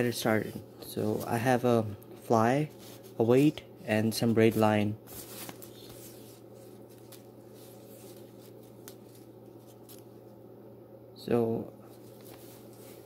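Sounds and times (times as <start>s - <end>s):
fishing line rustling on paper: 2.7s - 3.6s, 4.2s - 10.2s, 11.9s - 13.0s.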